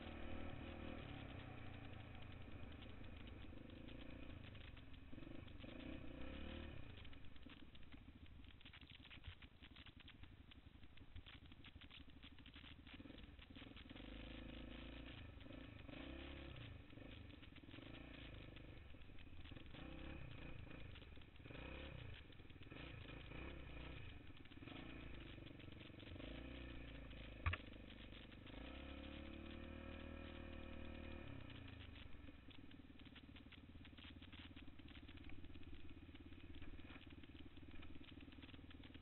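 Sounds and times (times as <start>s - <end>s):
atv engine revving: 0.0s - 10.6s, 11.2s - 39.0s
sharp click: 27.4s - 27.8s.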